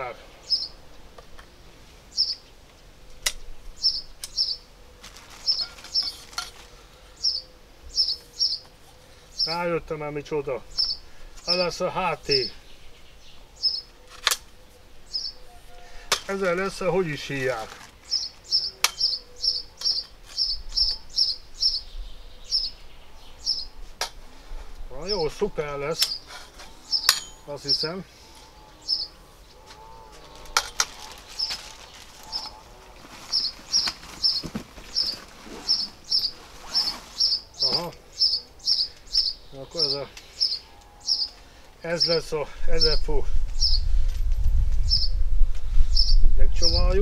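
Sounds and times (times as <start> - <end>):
small bird chirping: 0.4 - 0.8, 2.1 - 2.6, 3.8 - 4.7, 7.2 - 9.6, 10.7 - 11.6, 12.3 - 15.8, 18.0 - 23.8, 26.0 - 32.6, 33.3 - 41.4, 42.8 - 44.0, 44.8 - 45.2, 45.9 - 46.3.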